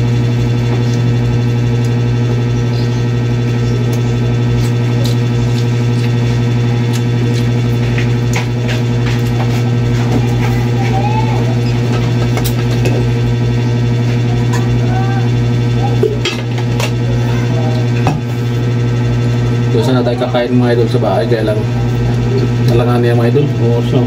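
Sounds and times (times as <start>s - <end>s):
motor humming: 0.0s - 24.0s.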